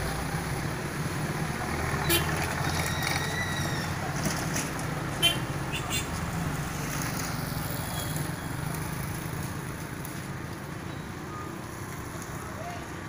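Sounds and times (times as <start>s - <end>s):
motorcycle and car engines: 0.0s - 13.0s.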